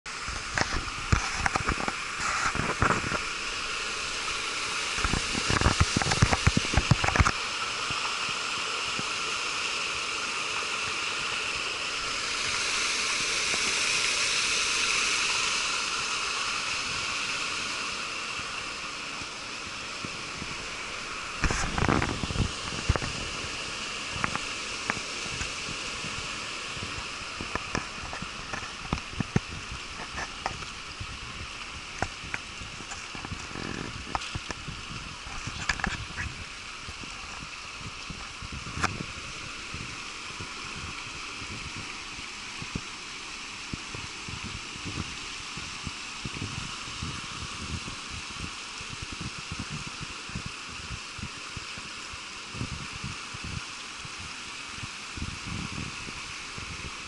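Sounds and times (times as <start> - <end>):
low thumps and crackles: 0.1 - 7.4, 19.2 - 43.0, 43.6 - 51.9, 52.5 - 57.0
water pouring into basin: 0.1 - 57.0.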